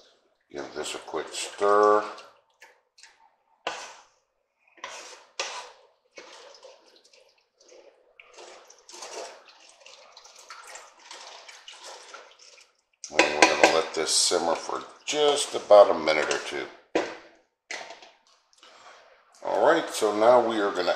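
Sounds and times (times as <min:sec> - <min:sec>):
liquid sloshing in pot: 0:01.4 - 0:16.5.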